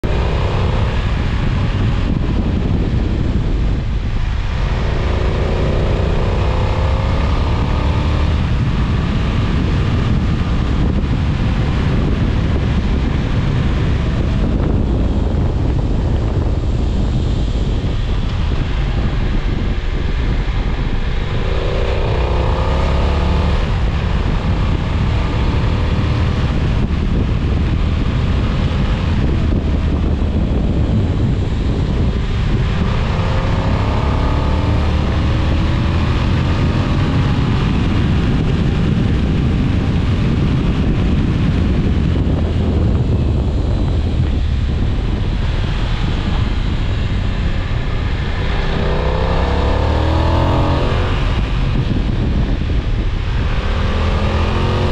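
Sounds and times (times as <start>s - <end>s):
motorcycle engine accelerating: 0.0s - 54.9s
wind rumble on microphone: 0.0s - 54.9s.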